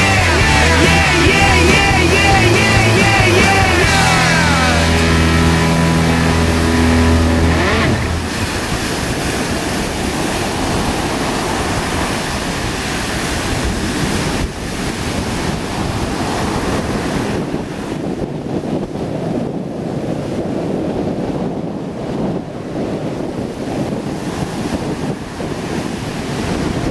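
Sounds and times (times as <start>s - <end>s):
music: 0.0s - 8.2s
breaking surf: 0.0s - 26.9s
wind buffeting microphone: 0.0s - 26.9s.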